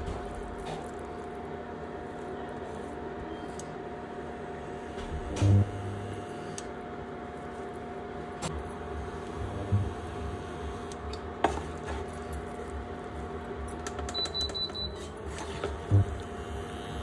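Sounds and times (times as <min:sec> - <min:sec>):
steady low hum: 0:00.0 - 0:17.0
high beeps: 0:14.1 - 0:15.0.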